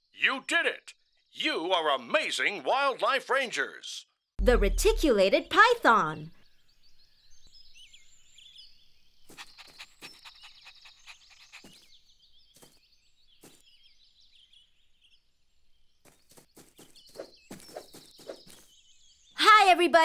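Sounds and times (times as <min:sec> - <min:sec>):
small birds chirping: 0:04.5 - 0:20.0.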